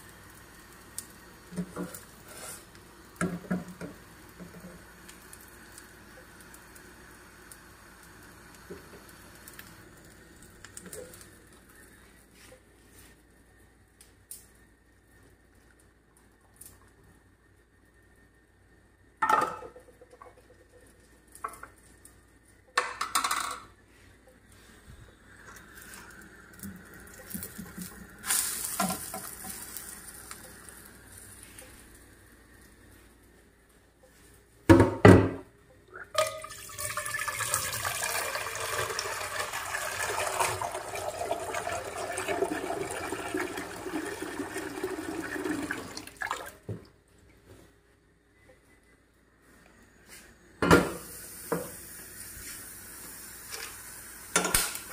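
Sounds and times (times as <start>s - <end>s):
tap water running into saucepan: 36.1s - 46.9s.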